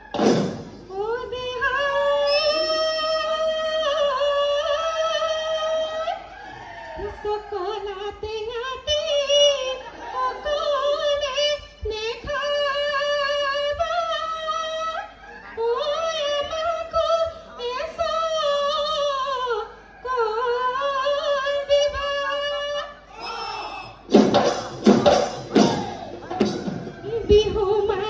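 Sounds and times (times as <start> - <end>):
faint drum beats: 23.2 - 28.0.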